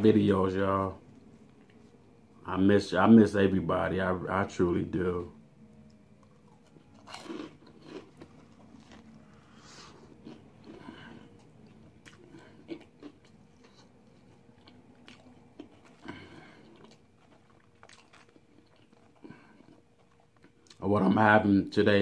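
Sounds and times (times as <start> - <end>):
faint closed-mouth chewing: 5.8 - 20.8.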